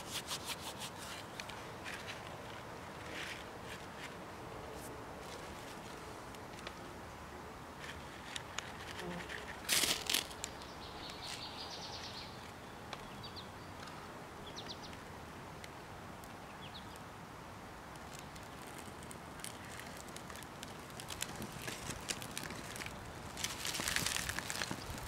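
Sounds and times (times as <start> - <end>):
bark tinder crackling: 7.8 - 12.5, 17.8 - 25.0.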